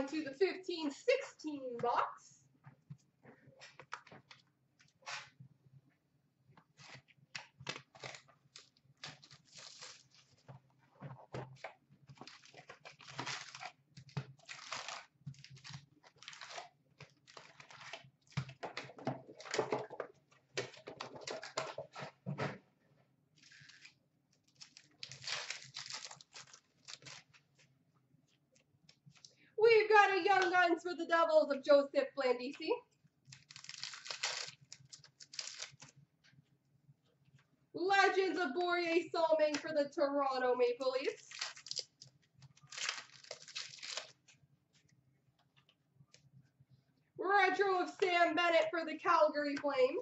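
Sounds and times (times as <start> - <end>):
plastic shrink wrap crinkling: 6.7 - 18.8, 23.4 - 27.7, 33.2 - 36.0, 41.0 - 44.4
cardboard tear strip ripping: 6.8 - 10.4, 12.2 - 13.8, 14.4 - 18.0, 23.4 - 27.3, 33.3 - 35.9, 41.2 - 42.0, 42.6 - 44.2.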